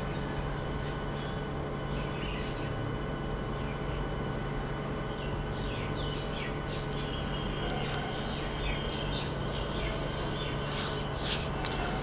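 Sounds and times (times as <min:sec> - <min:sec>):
steady low hum: 0:00.0 - 0:12.0
birds chirping: 0:05.1 - 0:11.9.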